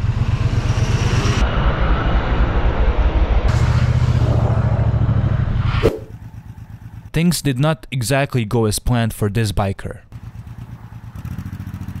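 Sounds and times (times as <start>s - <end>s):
motorcycle engine throbbing: 3.4s - 8.0s, 10.1s - 12.0s.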